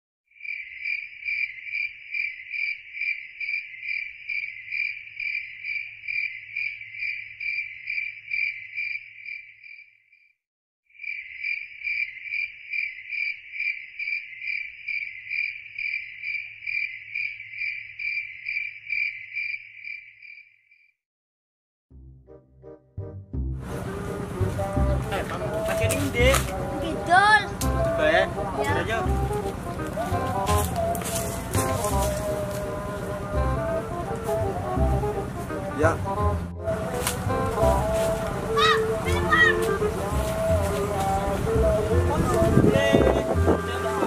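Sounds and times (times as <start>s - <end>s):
cricket chirping: 0.3s - 10.3s, 10.9s - 20.9s.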